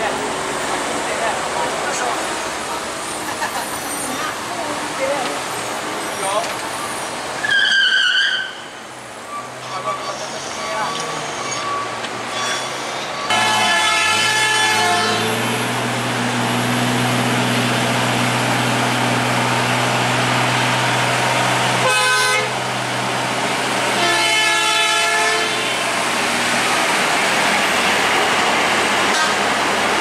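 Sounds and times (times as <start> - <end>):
bus engine droning under load: 0.0 - 30.0
bus horn blasts: 13.3 - 15.4, 21.8 - 22.6, 23.9 - 25.9, 29.1 - 29.5.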